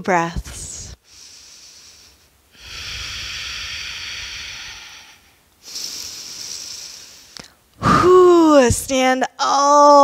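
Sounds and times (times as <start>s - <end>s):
woman breathing deeply: 0.8s - 8.2s.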